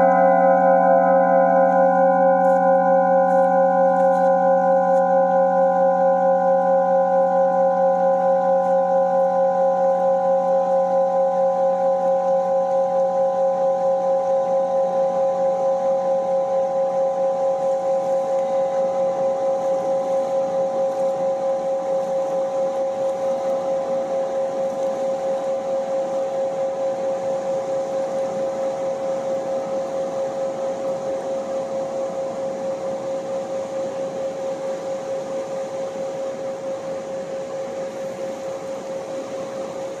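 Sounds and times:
singing bowl ringing: 0.0s - 40.0s
river rushing: 17.7s - 40.0s.

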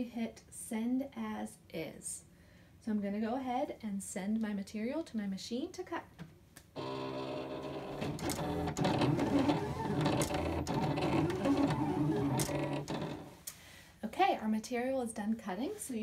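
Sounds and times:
vinyl cutter motors whirring: 6.8s - 13.3s.

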